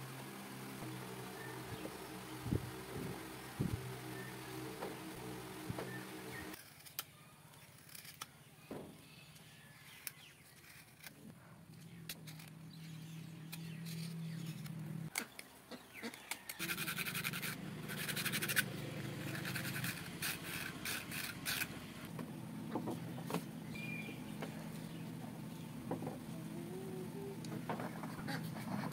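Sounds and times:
knife scraping bamboo: 6.5s - 7.0s, 10.4s - 11.2s, 16.0s - 22.0s.

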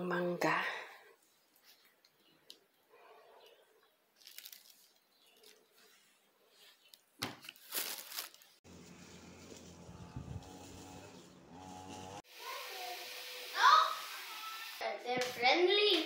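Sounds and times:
mango rustling on table: 4.2s - 10.9s.

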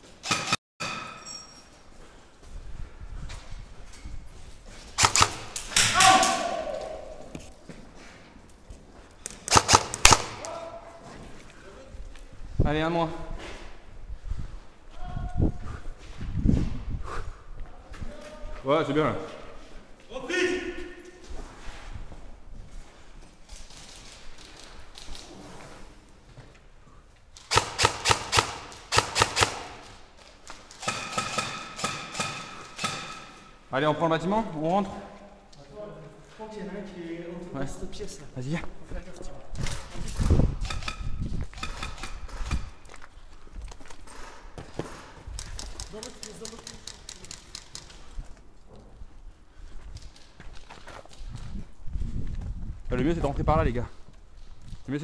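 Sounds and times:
airsoft rifle shots: 0.2s - 1.2s, 5.0s - 6.6s, 9.4s - 10.5s, 27.4s - 30.0s, 30.8s - 33.5s, 40.6s - 42.7s
person shouting: 5.8s - 7.3s, 10.4s - 11.0s.

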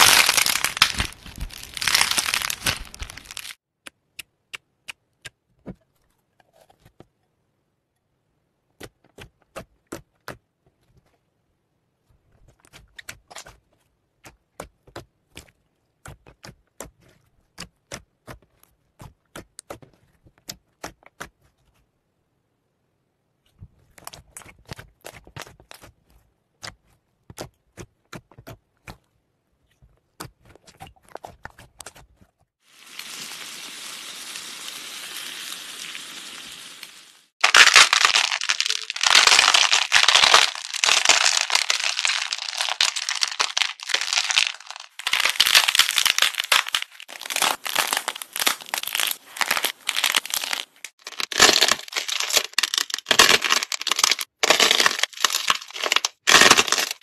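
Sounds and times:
crinkly crackling and crushing: 0.0s - 3.6s, 37.4s - 57.0s.

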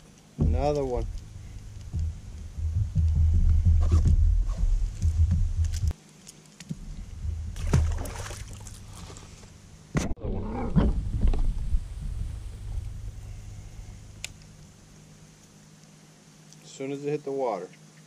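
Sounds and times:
steady low rumble: 0.0s - 6.0s, 6.6s - 15.4s.

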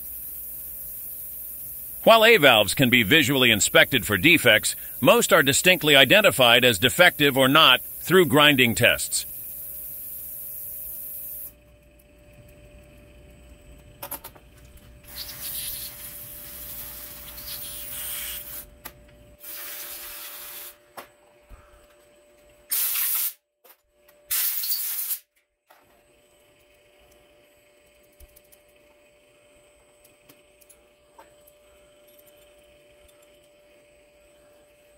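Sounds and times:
pressurized spray hissing: 15.1s - 18.6s.

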